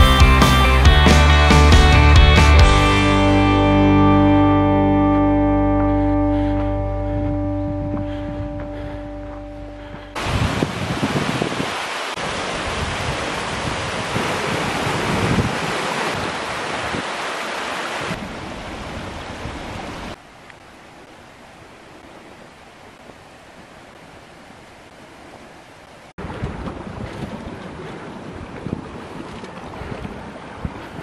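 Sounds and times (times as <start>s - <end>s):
wind buffeting microphone: 6.3s - 17.2s, 26.2s - 31.0s
stream water rushing: 7.9s - 31.0s.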